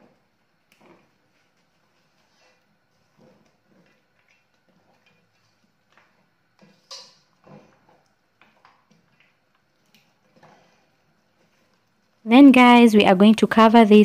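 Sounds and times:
spoon scraping a pot: 2.0 - 9.3, 9.9 - 11.8.

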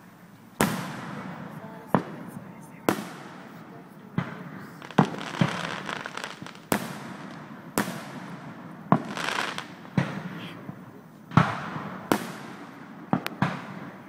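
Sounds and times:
firework bangs with rumble: 0.6 - 2.3, 2.9 - 14.0.

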